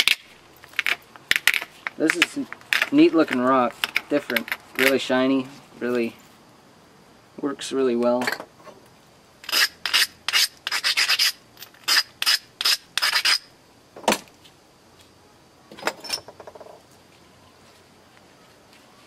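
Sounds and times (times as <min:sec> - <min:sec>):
stone scraping flake edge: 0:00.0 - 0:05.0, 0:09.4 - 0:13.5.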